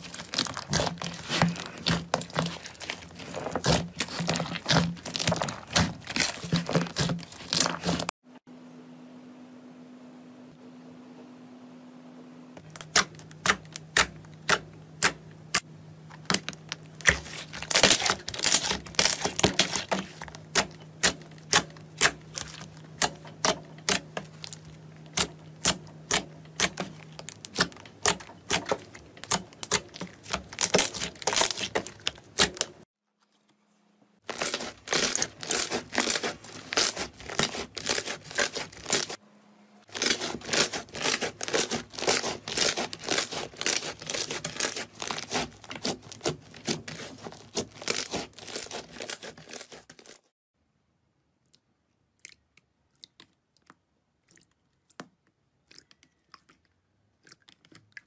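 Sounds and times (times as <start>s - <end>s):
slime squelching with wet clicks: 51.5s - 58.0s.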